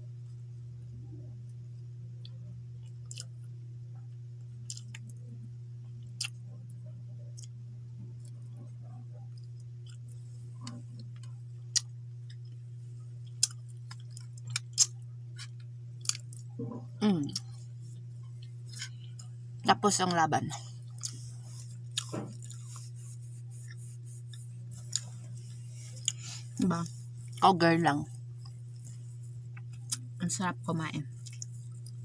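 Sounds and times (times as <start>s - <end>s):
low hum: 0.0s - 32.0s
lip smacks while eating: 3.1s - 3.3s, 4.7s - 5.1s, 21.0s - 27.4s, 31.2s - 32.0s.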